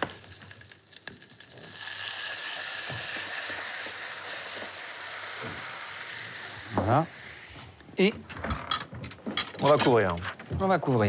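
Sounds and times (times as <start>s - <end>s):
light crackle: 0.0s - 7.9s
stock sizzling in hot fat: 0.0s - 8.0s.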